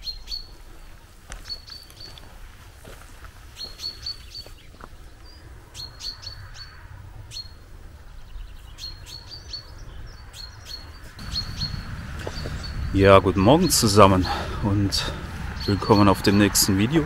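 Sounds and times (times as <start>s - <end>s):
songbird singing: 0.0s - 2.4s, 3.5s - 17.0s
low steady rumble: 11.2s - 17.0s.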